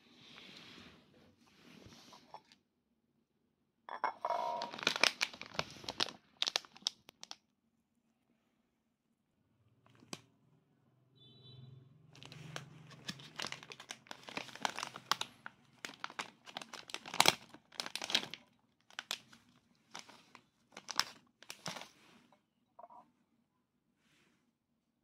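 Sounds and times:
plastic snack bag crinkling: 0:04.3 - 0:07.4, 0:12.2 - 0:22.0.

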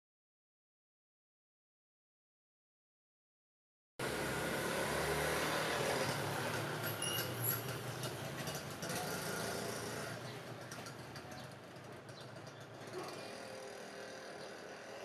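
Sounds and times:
wheel and rail noise: 0:04.0 - 0:15.0.

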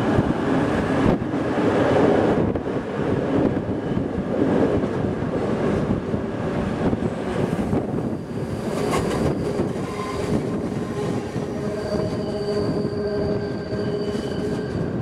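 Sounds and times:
train running gear rumble: 0:00.0 - 0:15.0
train wheels squealing: 0:08.0 - 0:15.0.

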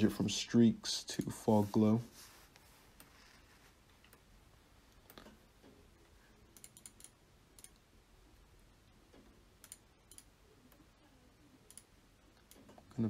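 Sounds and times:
computer mouse clicks: 0:06.5 - 0:07.9, 0:09.1 - 0:10.8, 0:11.6 - 0:12.8.

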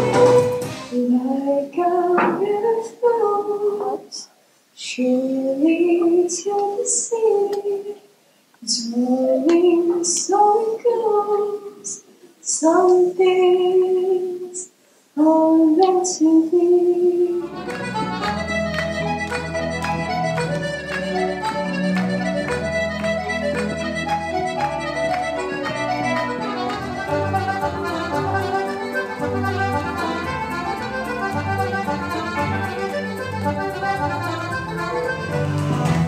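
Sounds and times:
woman singing unaccompanied: 0:00.0 - 0:17.6.

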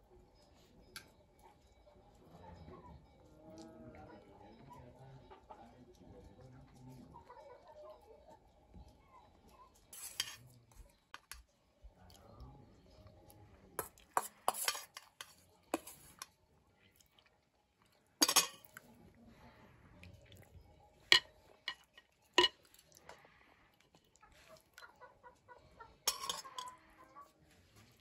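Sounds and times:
spoons clinking on glass bowl: 0:09.9 - 0:10.4, 0:13.8 - 0:16.3, 0:18.2 - 0:18.8, 0:21.1 - 0:22.7, 0:26.0 - 0:26.9.

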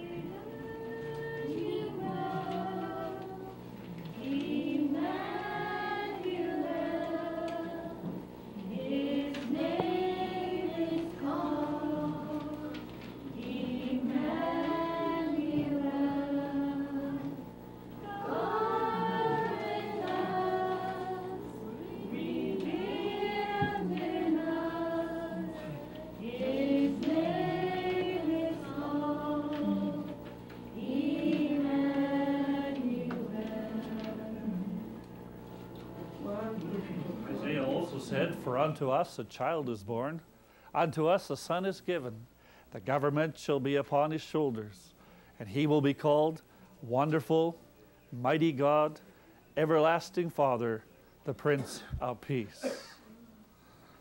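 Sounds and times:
adults and children singing a carol: 0:00.0 - 0:34.9, 0:36.1 - 0:39.2.

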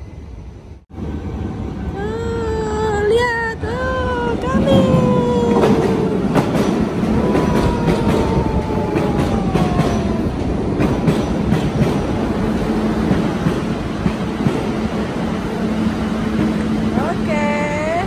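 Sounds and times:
train wheels clicking over rail joints: 0:04.6 - 0:14.8
train whine falling in pitch: 0:04.7 - 0:11.2.

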